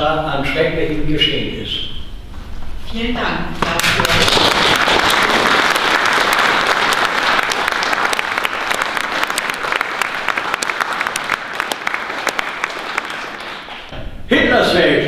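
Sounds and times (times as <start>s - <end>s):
audience applauding: 3.9s - 13.9s.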